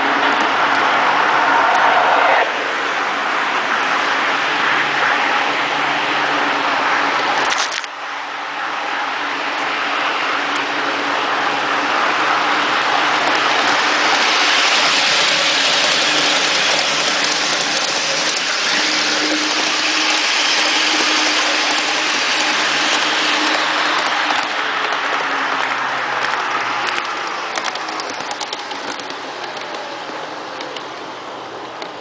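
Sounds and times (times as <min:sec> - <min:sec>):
model train rolling on track: 0:00.0 - 0:32.0
electric motor hum: 0:11.8 - 0:26.0.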